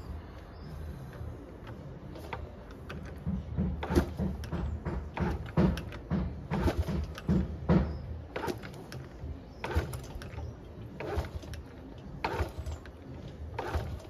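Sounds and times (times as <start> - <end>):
engine turning over: 2.1 - 14.0
motorcycle kick-start lever: 8.3 - 14.0.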